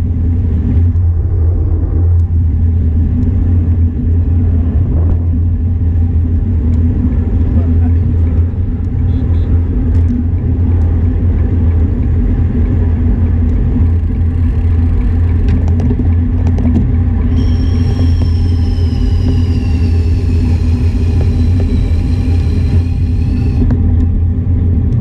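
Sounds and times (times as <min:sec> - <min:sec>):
road noise on asphalt: 0:00.0 - 0:25.0
wind buffeting: 0:11.2 - 0:24.4
faint high whine: 0:17.3 - 0:23.7.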